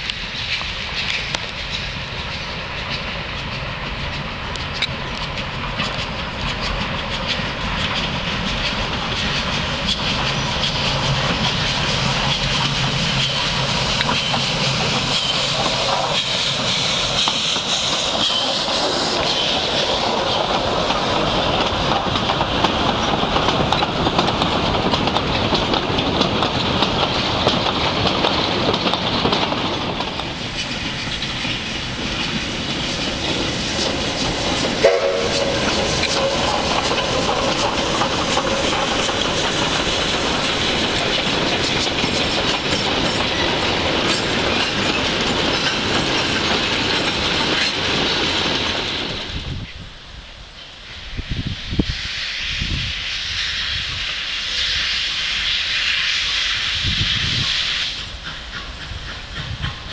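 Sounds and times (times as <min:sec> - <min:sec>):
steam locomotive working: 0:00.0 - 0:59.9
wagon wheels clattering on rails: 0:05.8 - 0:49.4.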